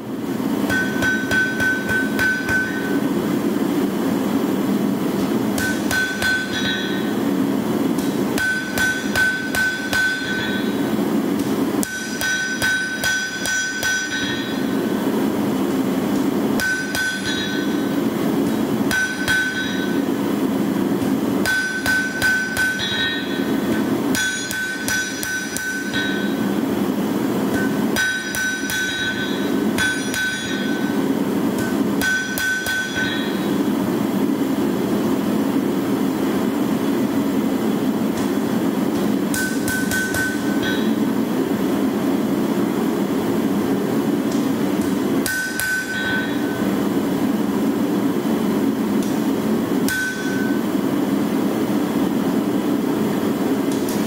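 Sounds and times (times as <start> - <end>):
hammer striking blade on anvil: 0.7 - 3.1, 5.2 - 7.2, 8.0 - 15.0, 16.6 - 20.1, 21.4 - 26.6, 27.5 - 33.7, 38.9 - 41.0, 44.8 - 46.7, 49.9 - 50.8.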